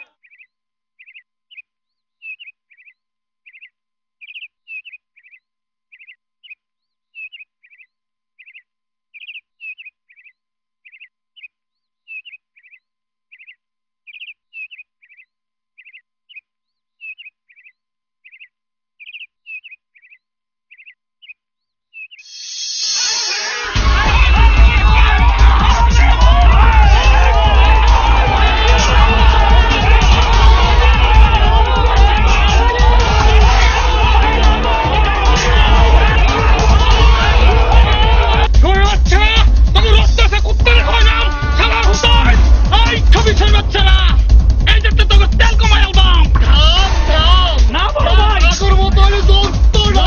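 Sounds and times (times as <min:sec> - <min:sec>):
small bird chirping: 0:00.0 - 0:22.9.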